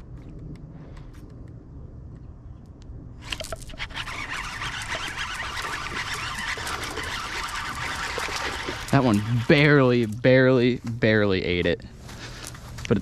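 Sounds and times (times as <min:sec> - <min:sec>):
fishing reel being cranked: 0:03.2 - 0:10.2
water splashing: 0:03.7 - 0:10.5.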